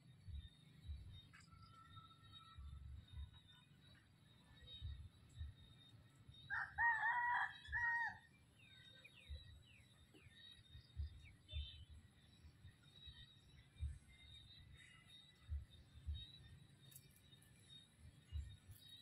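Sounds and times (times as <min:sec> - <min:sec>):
soft low thumps: 0:00.2 - 0:01.6, 0:02.6 - 0:03.6, 0:04.6 - 0:05.8, 0:09.1 - 0:16.5, 0:18.0 - 0:19.0
rooster crowing: 0:06.5 - 0:08.2.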